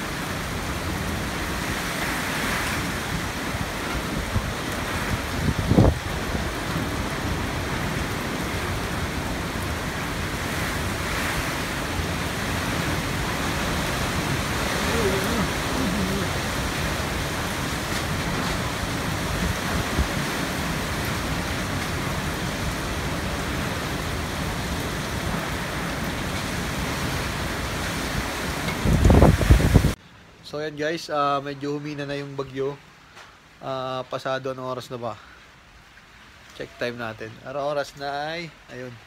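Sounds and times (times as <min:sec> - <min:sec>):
strong wind: 0:00.0 - 0:30.0
heavy rain: 0:00.0 - 0:39.0.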